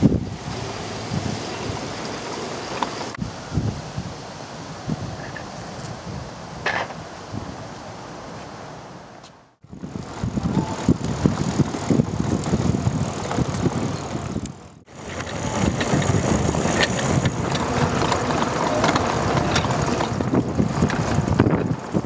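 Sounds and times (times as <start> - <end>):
go-kart wheels rumbling on paving: 0.0 - 3.2, 9.7 - 22.0.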